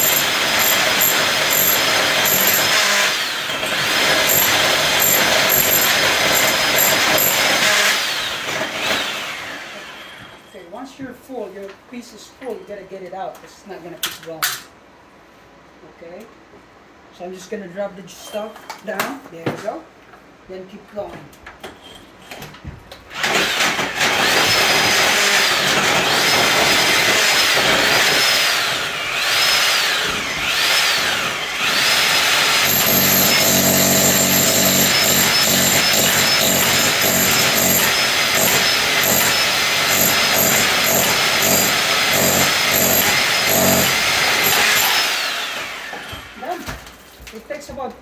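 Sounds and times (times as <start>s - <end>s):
rotary hammer drilling concrete: 0.0s - 9.5s, 23.2s - 46.3s.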